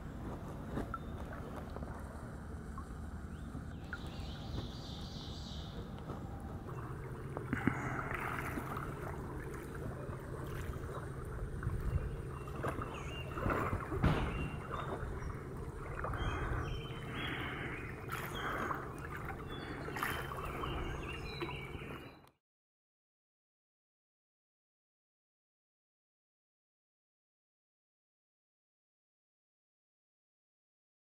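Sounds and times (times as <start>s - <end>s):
steady low rumble: 0.0s - 22.0s
kayak paddle splashing: 0.1s - 22.2s.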